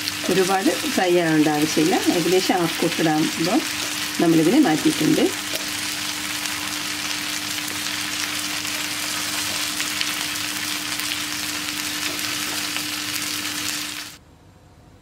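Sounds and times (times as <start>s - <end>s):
chicken sizzling in oil: 0.0s - 14.2s.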